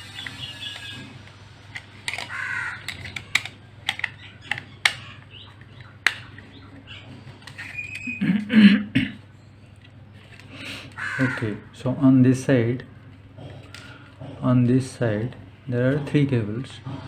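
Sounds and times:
plastic cover clicking and tapping: 2.1s - 6.3s
crows cawing: 2.1s - 8.6s, 10.5s - 11.8s, 12.8s - 14.6s.

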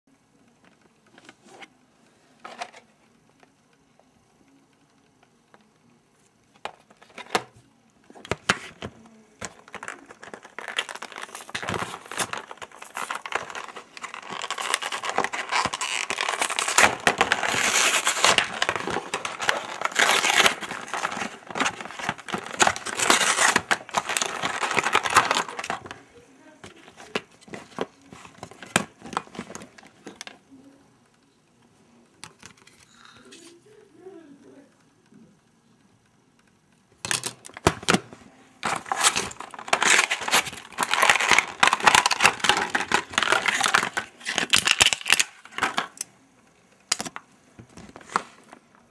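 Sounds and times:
plastic blister pack crinkling: 8.1s - 30.8s, 37.0s - 46.1s, 46.9s - 48.9s
cardboard tearing: 9.7s - 26.0s, 38.6s - 45.9s.

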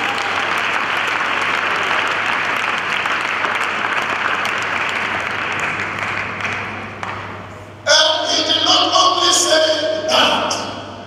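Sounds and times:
congregation applauding: 0.0s - 7.5s.

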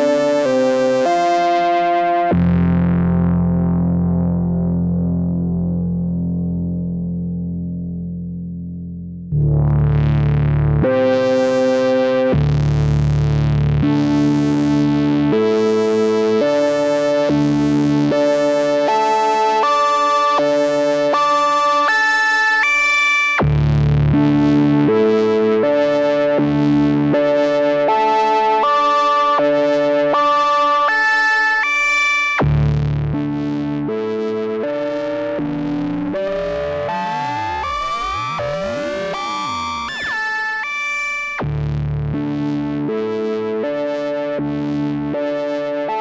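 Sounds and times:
synthesizer pad notes: 32.6s - 46.0s.

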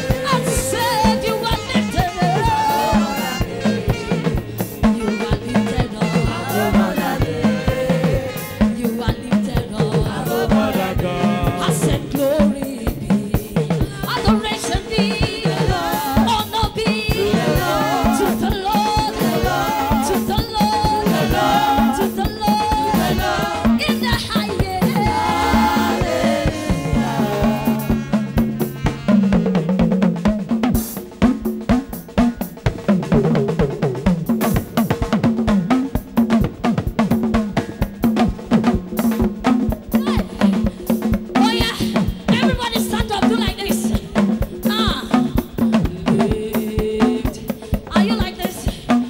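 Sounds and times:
gospel singing: 0.0s - 29.0s, 45.5s - 49.0s
drum kit beat: 0.0s - 49.0s.

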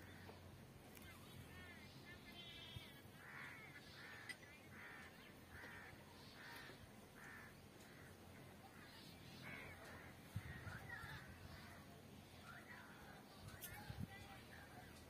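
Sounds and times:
crow cawing: 3.2s - 11.8s.

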